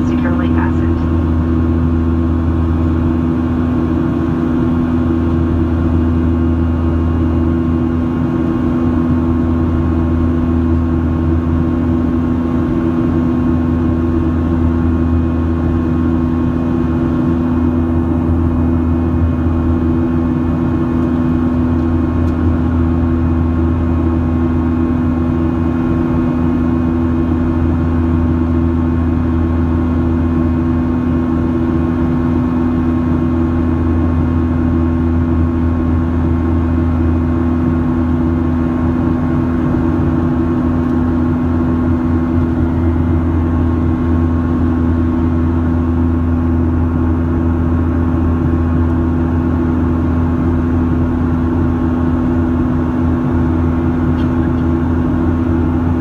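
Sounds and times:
steady humming tones: 0.0s - 6.3s
airplane cabin engine drone: 0.0s - 56.0s.

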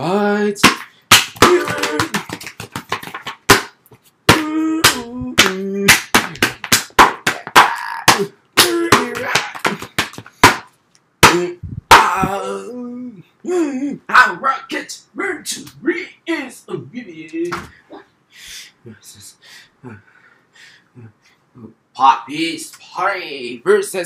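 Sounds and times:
wordless vocal sounds: 0.0s - 2.4s, 4.3s - 6.6s, 7.2s - 10.0s, 11.2s - 23.4s
hand slaps and claps: 0.6s - 12.2s.

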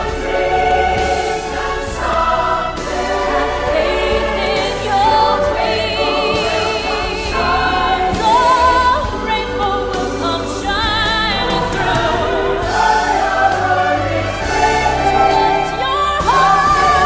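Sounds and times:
choir singing held notes: 0.0s - 17.0s
music: 0.0s - 17.0s.

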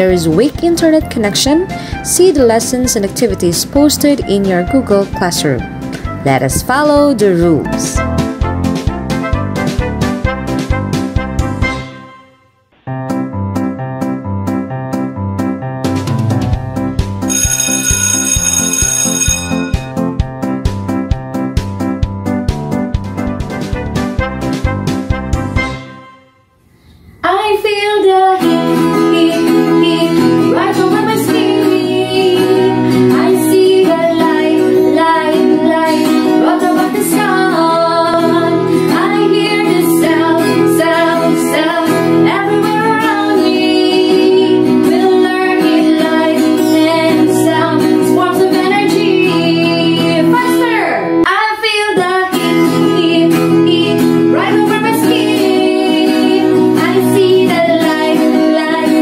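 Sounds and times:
acoustic guitar: 0.0s - 12.1s, 12.8s - 17.6s, 27.2s - 59.0s
woman singing: 27.2s - 59.0s.

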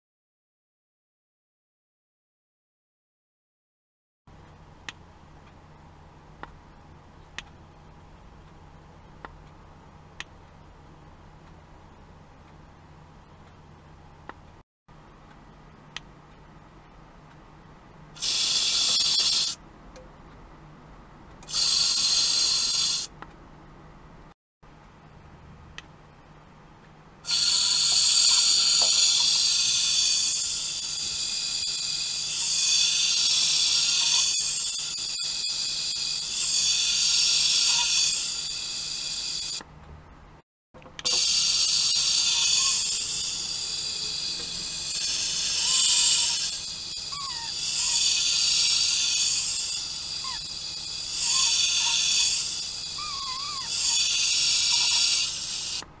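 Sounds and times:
sonic vibrating device hissing: 18.2s - 19.6s, 21.5s - 23.1s, 27.3s - 39.6s, 41.1s - 55.9s.

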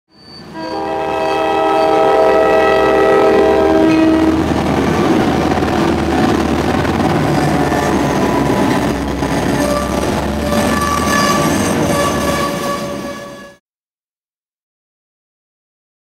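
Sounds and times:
train rail noise: 0.1s - 13.6s
locomotive engine rumble: 0.2s - 13.4s
locomotive air horn: 0.4s - 4.6s, 9.4s - 13.6s.

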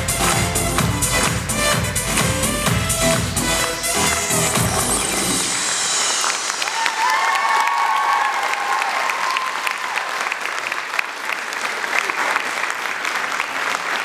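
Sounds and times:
audience applauding: 3.1s - 14.0s.

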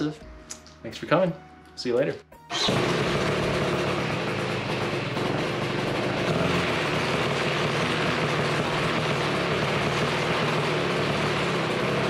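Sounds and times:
propeller spinning: 2.5s - 12.0s
two-stroke engine running: 2.5s - 12.0s.

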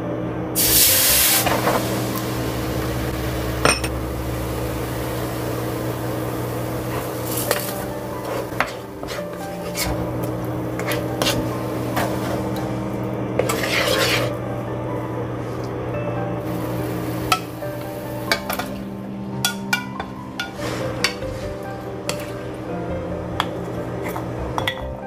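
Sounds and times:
steady low tones: 0.1s - 13.4s, 14.3s - 24.6s
spatula against pan: 6.9s - 10.0s, 10.8s - 12.5s, 13.4s - 14.4s
bowls clinking: 23.4s - 25.0s.

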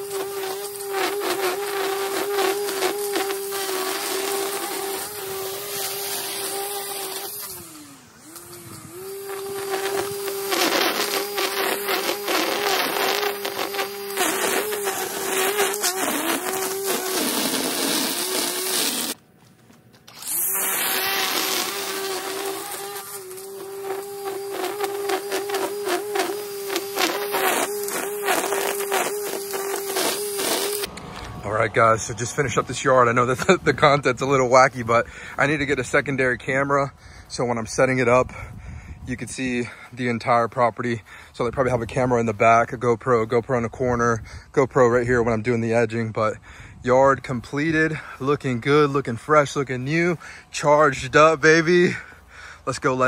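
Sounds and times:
trimmer line crackling through grass: 0.0s - 38.1s
string trimmer whining: 0.0s - 53.0s.

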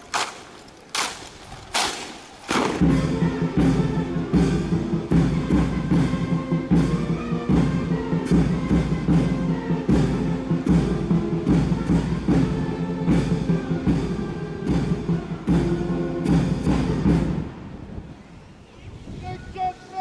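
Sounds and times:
brass band march: 0.0s - 17.6s
steady drum beat: 2.5s - 17.4s.

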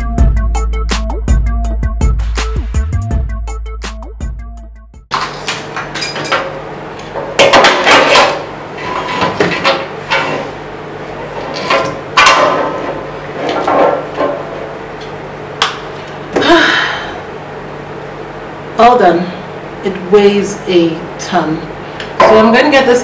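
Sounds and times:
metal scraping on tiled floor: 8.2s - 10.6s.

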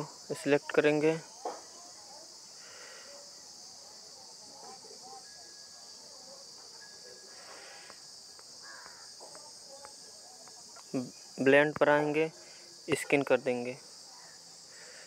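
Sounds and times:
high-pitched hiss: 0.0s - 15.0s.

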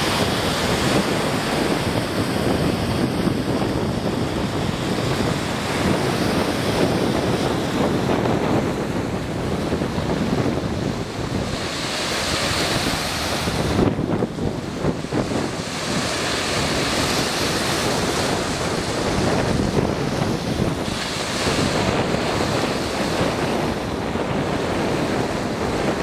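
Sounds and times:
waves breaking on shore: 0.0s - 26.0s
wind buffeting microphone: 0.0s - 26.0s.

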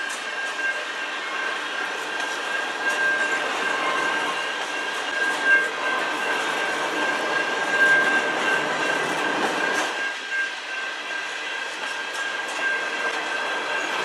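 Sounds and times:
freight train rumbling past: 0.0s - 14.0s
high-pitched ringing tone: 0.0s - 14.0s.

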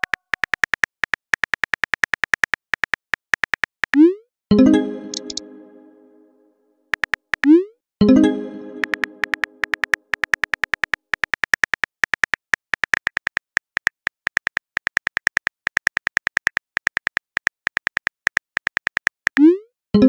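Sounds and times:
phone keyboard typing clicks: 5.0s - 5.5s, 8.6s - 19.4s.

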